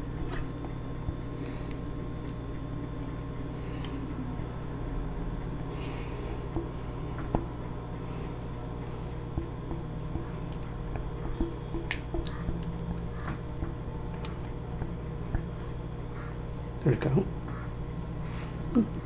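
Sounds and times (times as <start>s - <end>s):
wet squishes: 0.0s - 16.8s.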